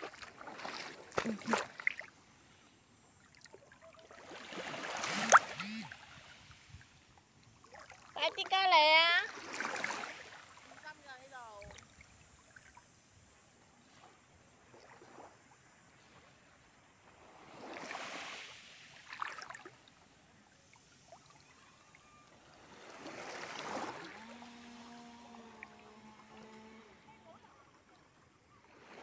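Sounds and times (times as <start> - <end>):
small waves lapping: 0.0 - 29.0
low multi-tone hum: 24.0 - 28.0.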